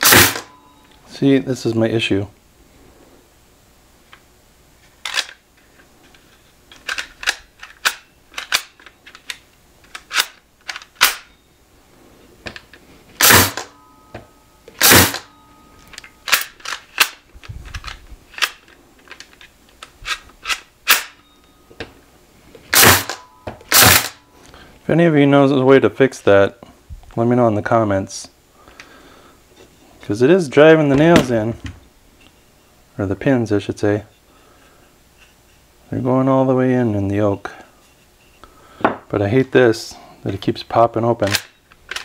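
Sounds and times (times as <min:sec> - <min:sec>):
pin nailer snapping: 0:00.0 - 0:00.5, 0:10.0 - 0:11.3, 0:13.2 - 0:13.8, 0:14.7 - 0:15.3, 0:20.4 - 0:21.2, 0:22.7 - 0:24.2.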